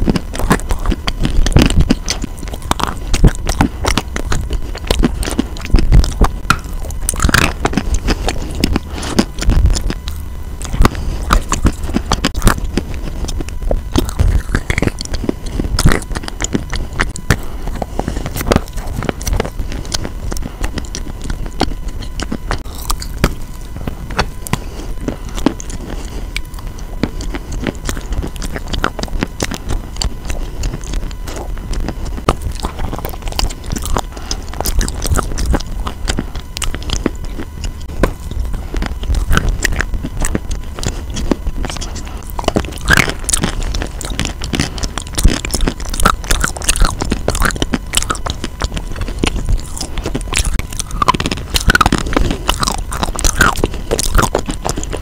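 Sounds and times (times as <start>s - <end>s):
chalk crunching in mouth: 0.0s - 55.0s.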